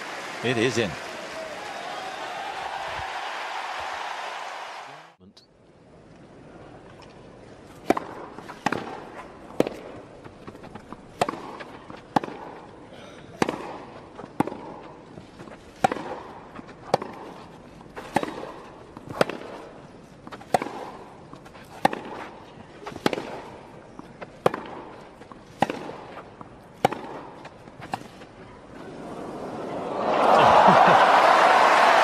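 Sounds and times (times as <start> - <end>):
tennis ball hits: 7.7 - 28.6.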